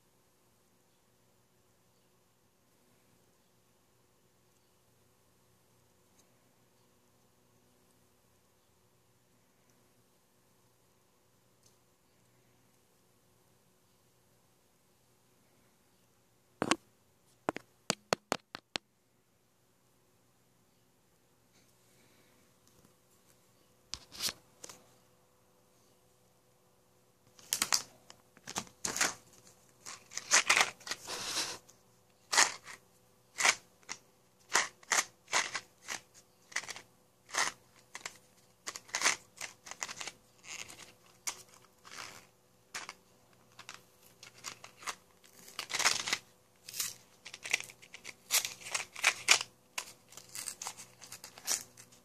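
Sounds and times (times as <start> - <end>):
packaging crinkling and tearing: 27.4 - 31.6, 33.4 - 52.0.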